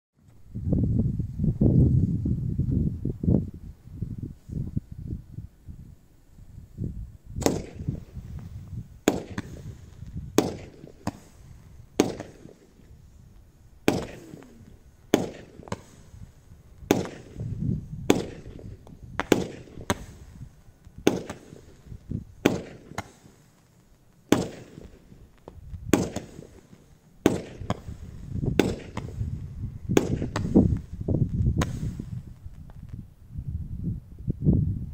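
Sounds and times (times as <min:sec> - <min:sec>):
firework bangs: 0:07.3 - 0:32.9.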